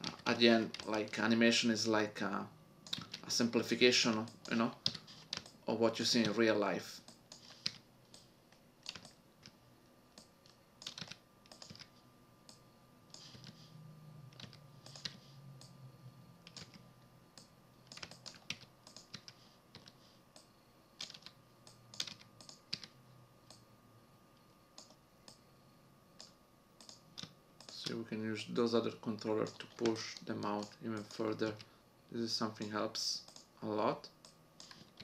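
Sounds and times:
computer keyboard and mouse clicking: 0.0 - 1.2, 2.8 - 3.3, 4.0 - 6.4, 7.0 - 9.6, 10.2 - 11.9, 12.5 - 13.6, 14.3 - 15.8, 16.4 - 23.6, 24.8 - 25.4, 26.2 - 28.0, 29.3 - 31.7, 33.2 - 33.5, 34.2 - 35.0.

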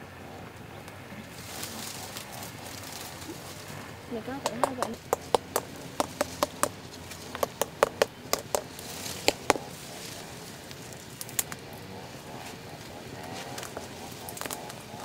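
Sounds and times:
sharp clicks and knocks: 4.3 - 9.7.

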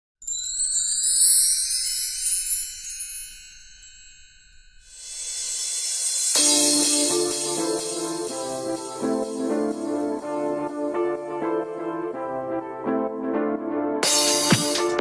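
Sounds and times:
shimmering chime-like tones: 0.2 - 8.1.

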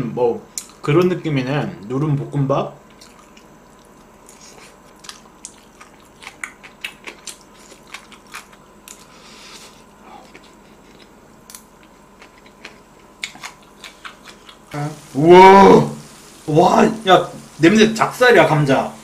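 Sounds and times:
crunchy chewing: 2.8 - 14.8.

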